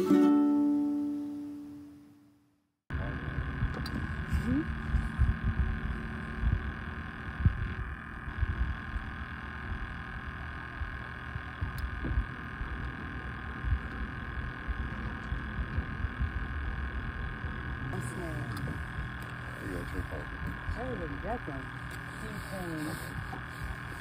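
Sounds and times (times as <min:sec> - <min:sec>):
boat motor humming: 0:02.9 - 0:24.0
wind rumble on microphone: 0:03.0 - 0:18.0.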